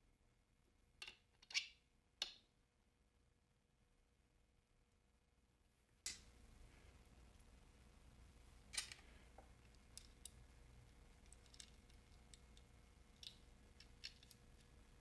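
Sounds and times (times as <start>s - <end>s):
small parts clicking and tapping: 8.7s - 14.8s.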